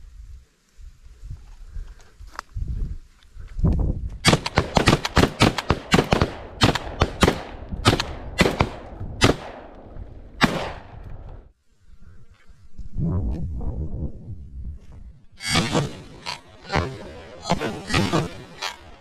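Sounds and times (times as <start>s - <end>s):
shotgun shots: 4.2s - 9.8s, 10.4s - 11.0s.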